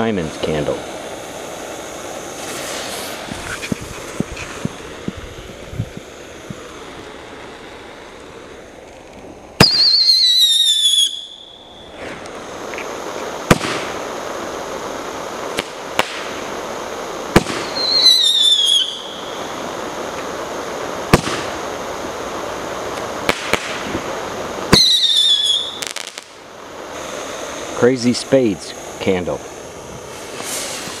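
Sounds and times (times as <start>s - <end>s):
firework sharp bangs: 0.0s - 28.1s, 28.9s - 31.0s
falling firework whistles: 0.0s - 31.0s
firework hissing burn: 0.0s - 31.0s.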